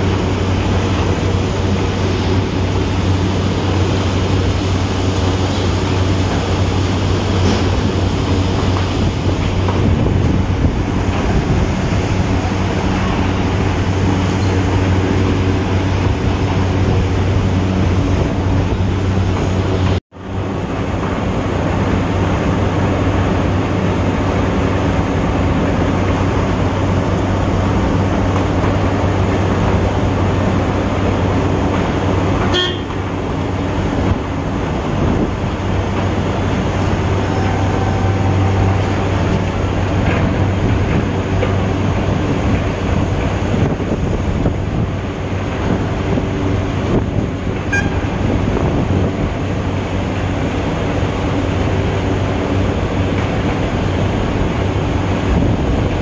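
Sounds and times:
machinery drone: 0:00.0 - 0:56.0
short horn toot: 0:32.5 - 0:33.0, 0:37.2 - 0:39.3, 0:47.7 - 0:48.2.

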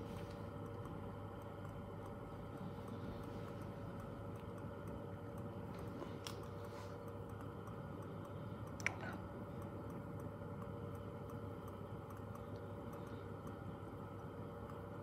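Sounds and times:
faint rapid ticking: 0:00.0 - 0:15.0.

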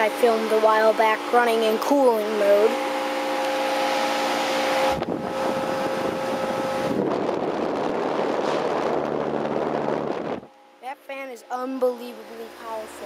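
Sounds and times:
air conditioner unit humming: 0:00.0 - 0:13.0.

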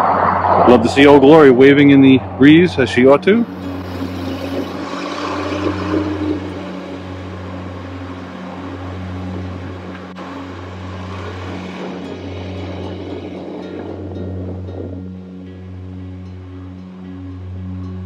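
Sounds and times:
road noise: 0:00.0 - 0:18.0
truck engine humming: 0:00.0 - 0:18.0.

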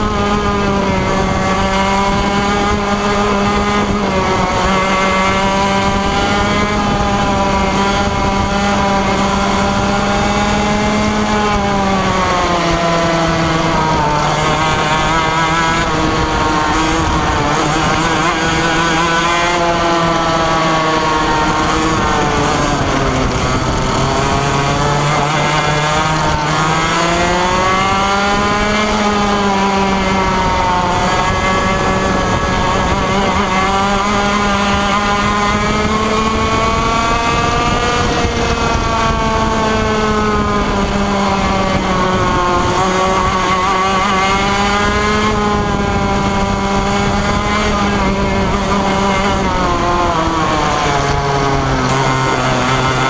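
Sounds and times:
kart engine revving: 0:00.0 - 0:53.0.

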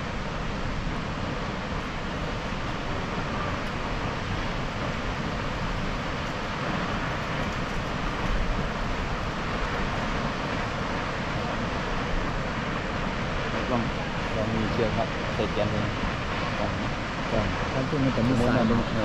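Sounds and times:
waterfall rushing roar: 0:00.0 - 0:19.0.

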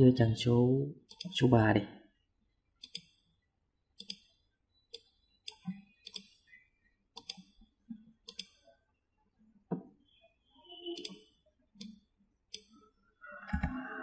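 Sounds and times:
computer mouse clicking: 0:01.1 - 0:01.4, 0:02.8 - 0:03.4, 0:04.0 - 0:06.6, 0:07.2 - 0:08.8, 0:11.0 - 0:12.9.

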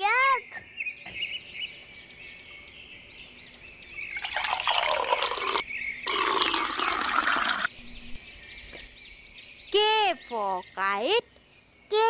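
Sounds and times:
liquid pouring into vessel: 0:04.0 - 0:07.7.

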